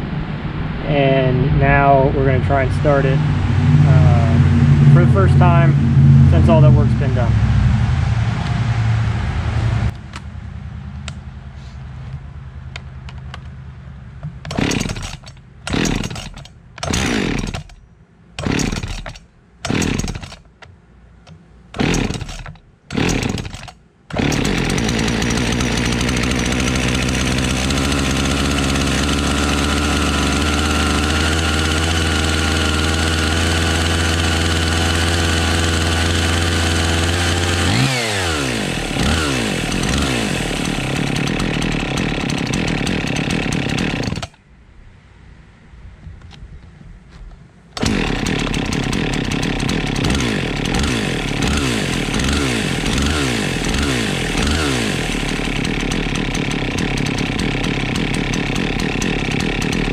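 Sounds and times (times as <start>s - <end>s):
chainsaw running and revving: 2.5s - 7.3s, 14.5s - 17.8s, 18.4s - 20.5s, 21.7s - 44.4s, 47.8s - 59.9s
recoil starter pulls: 14.2s - 17.8s, 18.4s - 44.4s, 47.7s - 59.9s.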